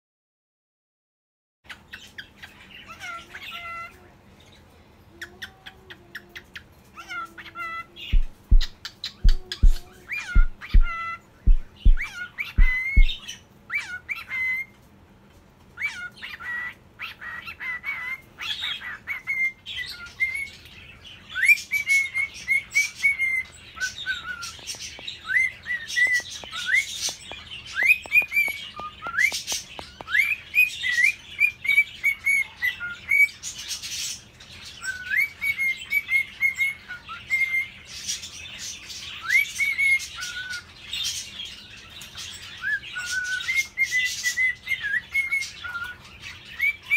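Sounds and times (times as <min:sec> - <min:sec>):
cockatiel whistling song: 0:07.0 - 0:14.7, 0:15.8 - 0:20.6, 0:21.3 - 0:33.4, 0:34.8 - 0:37.8, 0:39.1 - 0:40.7, 0:42.5 - 0:46.9
faint high chirps and clicks: 0:08.1 - 0:13.3, 0:21.4 - 0:33.2.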